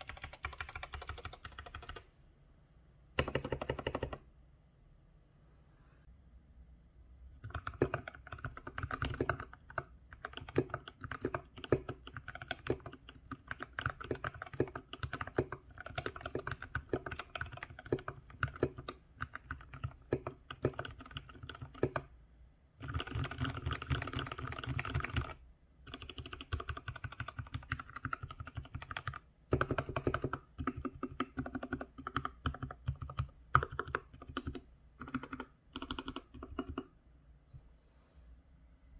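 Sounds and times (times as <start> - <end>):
mechanical keyboard typing: 0.0 - 2.1, 3.2 - 4.2, 7.4 - 22.1, 22.8 - 36.9.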